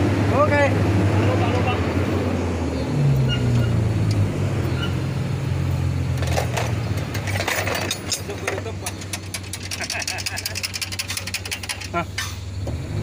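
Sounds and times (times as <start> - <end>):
truck diesel engine droning: 0.0 - 13.0
sharp clicks and knocks: 6.1 - 12.8.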